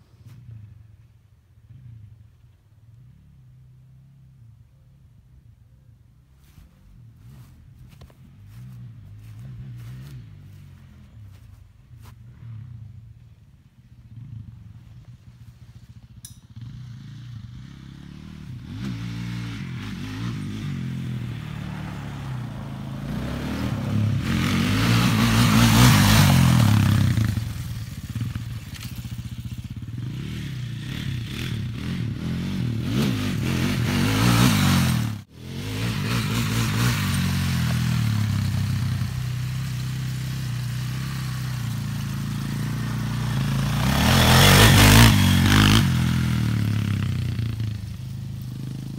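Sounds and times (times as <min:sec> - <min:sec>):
quad bike engine revving: 0:07.3 - 0:11.5, 0:15.1 - 0:48.9.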